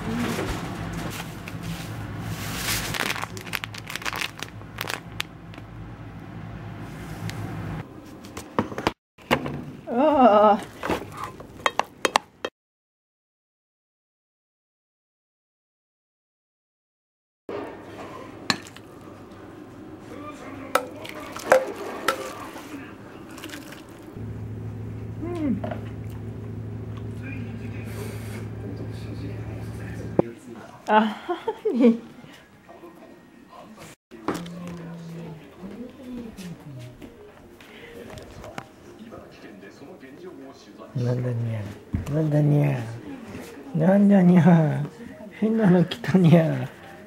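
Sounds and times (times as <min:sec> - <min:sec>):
plastic pouch crinkling: 0:02.5 - 0:05.4
soup pouring: 0:21.0 - 0:24.1
steady low hum: 0:23.9 - 0:30.2.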